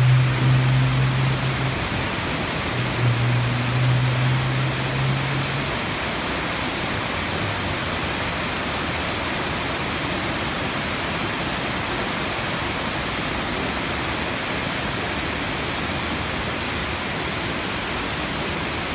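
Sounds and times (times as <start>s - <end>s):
waterfall rushing over rocks: 0.0s - 18.9s.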